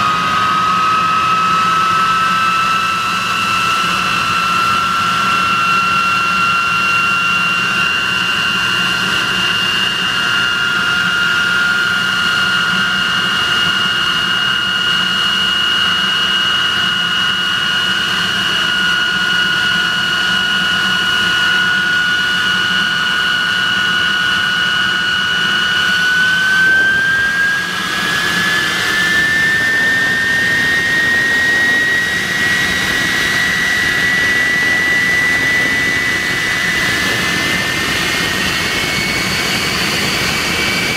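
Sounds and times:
jet engine roar with high whine: 0.0s - 40.9s.

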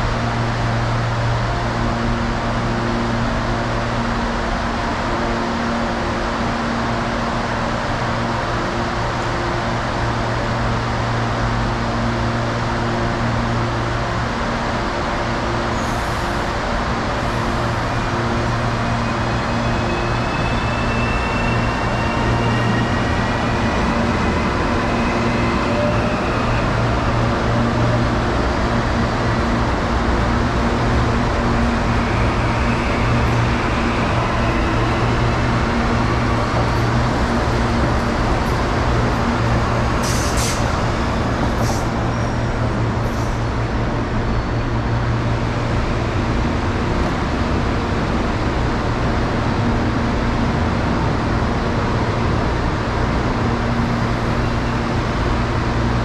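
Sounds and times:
electric train humming: 0.0s - 56.0s
air hisses: 40.0s - 40.7s.

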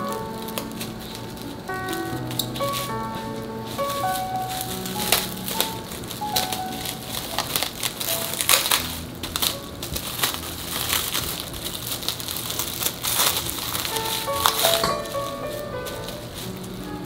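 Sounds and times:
plastic cling wrap crinkling: 0.0s - 17.0s.

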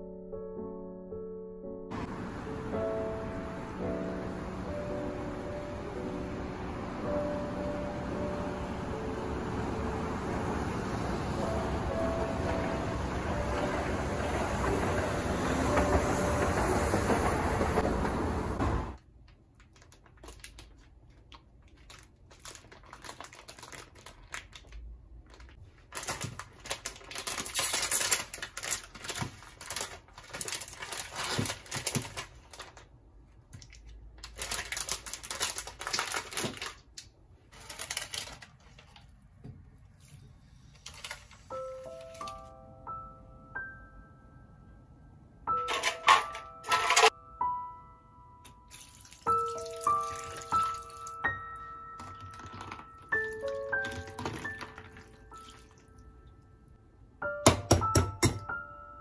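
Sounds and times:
background music: 0.0s - 19.0s, 41.4s - 59.0s
plastic packaging crinkling: 19.2s - 39.4s, 40.7s - 42.4s, 48.7s - 55.8s.

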